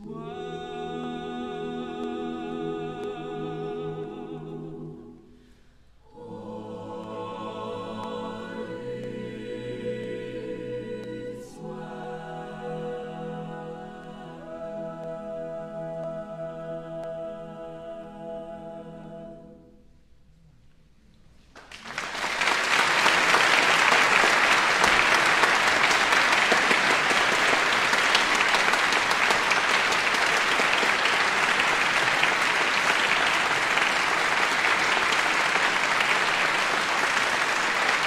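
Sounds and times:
choir holding a chord: 0:00.0 - 0:05.4, 0:06.0 - 0:19.8, 0:22.9 - 0:38.0
audience clapping: 0:21.5 - 0:38.0.

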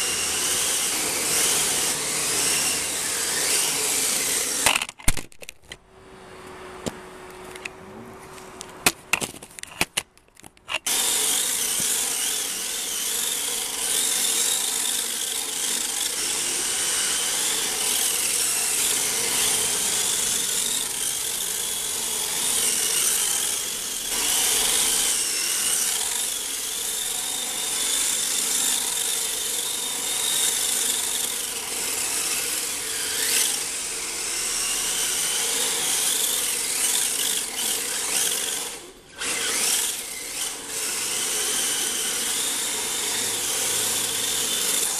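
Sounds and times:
electric motor whining: 0:00.0 - 0:04.9, 0:10.7 - 0:44.9
sharp clicks: 0:04.5 - 0:05.8.

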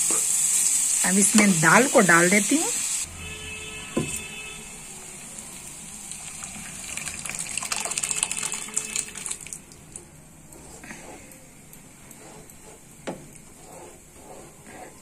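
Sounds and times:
liquid gushing into hot pan: 0:05.9 - 0:09.6.

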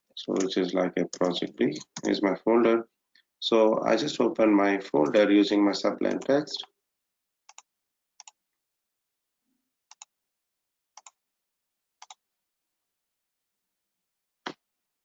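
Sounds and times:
computer mouse clicks: 0:00.3 - 0:02.2, 0:07.5 - 0:08.4, 0:09.9 - 0:10.1, 0:11.0 - 0:11.2, 0:12.0 - 0:12.2.

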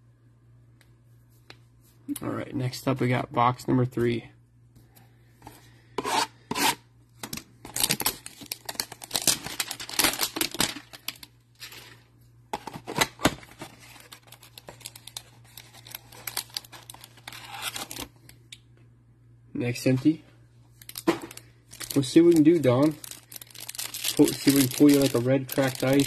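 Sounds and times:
cardboard tearing and crinkling: 0:07.7 - 0:12.0, 0:12.6 - 0:18.1, 0:20.9 - 0:26.0.

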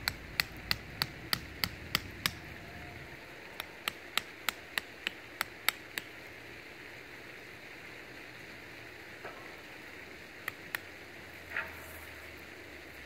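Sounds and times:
tool tapping wooden stake: 0:00.0 - 0:02.5, 0:03.6 - 0:06.1, 0:10.4 - 0:10.8.

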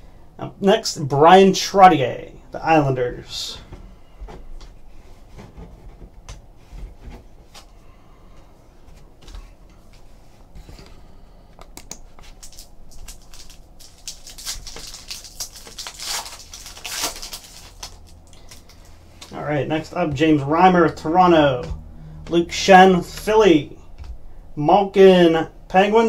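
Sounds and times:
foil pack crinkling and tearing: 0:12.2 - 0:19.4.

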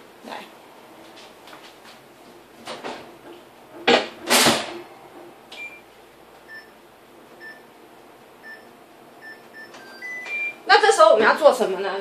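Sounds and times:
microwave keypad beeping: 0:05.5 - 0:06.8, 0:07.4 - 0:07.7, 0:08.4 - 0:10.7.

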